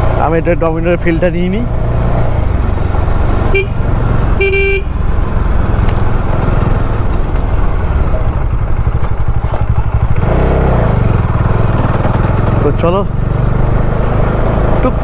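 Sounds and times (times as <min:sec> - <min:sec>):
motorcycle engine: 0:00.0 - 0:15.0
road rumble: 0:00.0 - 0:15.0
horn tooting: 0:03.5 - 0:03.8, 0:04.4 - 0:05.0.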